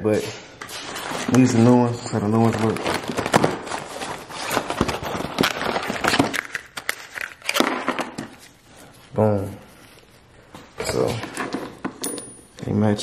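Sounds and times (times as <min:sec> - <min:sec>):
packaging crinkling and rustling: 0:00.8 - 0:08.6.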